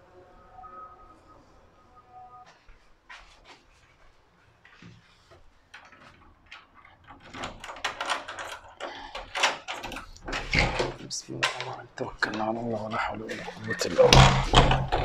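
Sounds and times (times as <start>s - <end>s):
wooden door clicks and knocks: 7.1s - 11.0s, 14.0s - 15.0s.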